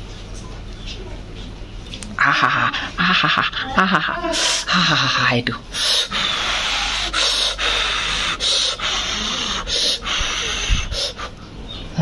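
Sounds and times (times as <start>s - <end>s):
person eating noisily: 1.8s - 11.4s
short hissing breaths: 5.7s - 11.4s.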